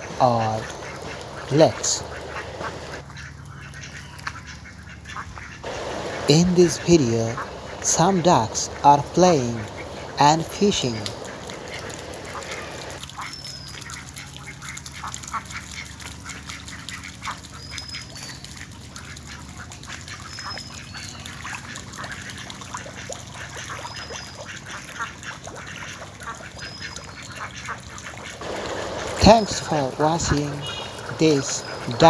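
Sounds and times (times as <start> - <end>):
ducks quacking: 0.0 - 13.0, 21.3 - 32.0.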